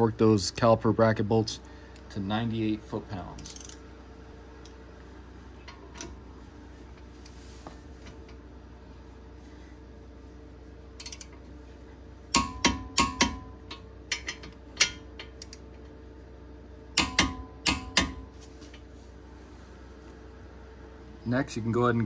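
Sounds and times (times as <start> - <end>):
torque wrench clicking: 3.4 - 3.8, 11.0 - 11.4, 12.4 - 15.6.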